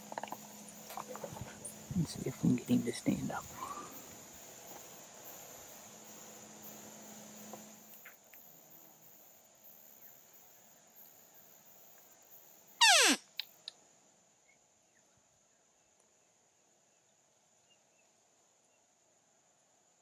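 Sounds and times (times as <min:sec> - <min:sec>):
hunter's call falling in pitch: 0:12.8 - 0:13.2.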